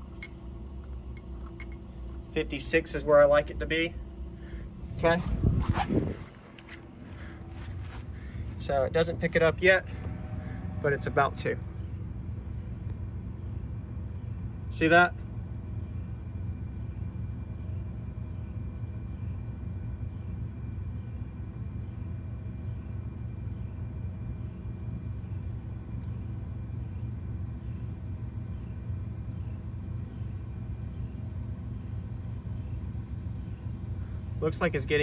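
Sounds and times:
deep subwoofer test tone: 0.0s - 13.6s.

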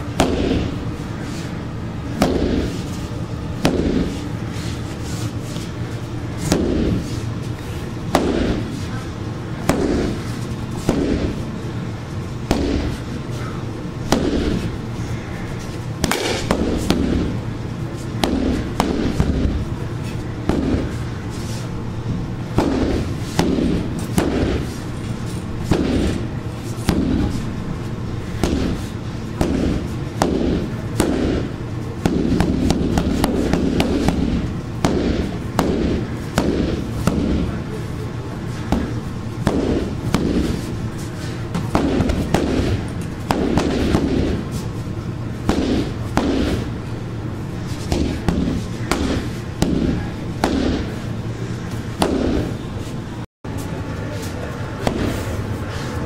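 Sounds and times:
stick whacking heavy bag: 0.2s - 1.5s, 2.1s - 5.7s, 6.4s - 9.0s, 9.6s - 11.4s, 12.4s - 14.8s, 16.0s - 17.4s, 18.0s - 21.6s, 22.5s - 27.4s, 28.3s - 37.6s, 38.5s - 44.7s, 45.4s - 46.8s, 47.6s - 51.1s, 51.9s - 52.6s, 54.8s - 55.9s.

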